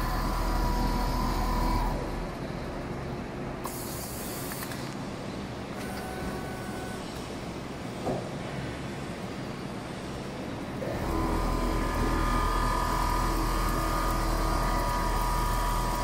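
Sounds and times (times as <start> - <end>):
machine whining tone: 0.0 - 2.4, 5.8 - 7.1, 10.8 - 16.0
quilting machine running: 0.0 - 2.4, 10.8 - 16.0.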